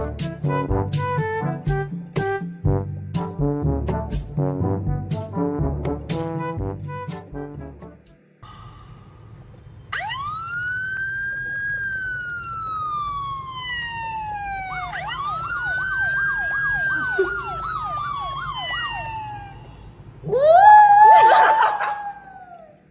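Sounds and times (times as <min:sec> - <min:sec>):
emergency vehicle siren: 0:09.8 - 0:22.6.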